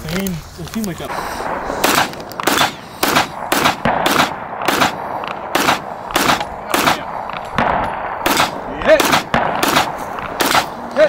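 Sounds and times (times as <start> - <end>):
rifle shots with echo: 1.1 - 11.0.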